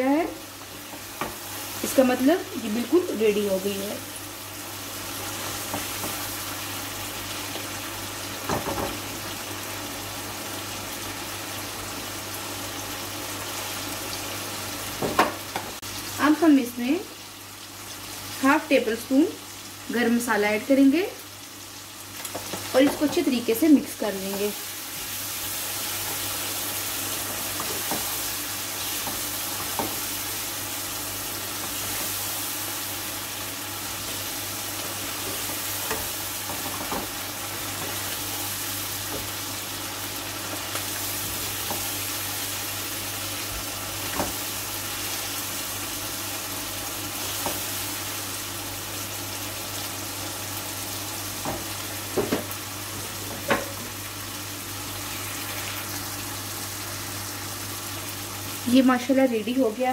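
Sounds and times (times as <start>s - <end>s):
curry sizzling in a wok: 0.0s - 59.9s
spatula scraping and tapping pan: 27.2s - 28.2s.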